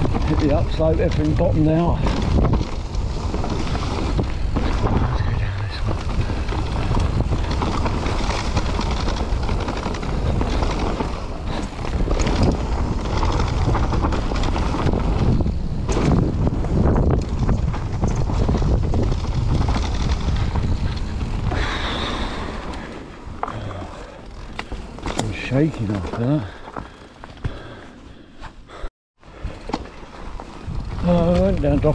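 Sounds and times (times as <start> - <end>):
wind rushing over microphone: 0.0 - 26.6, 30.2 - 31.9
bike rattling and knocking: 0.0 - 27.8, 29.4 - 31.9
tyres on dirt trail: 0.0 - 31.9.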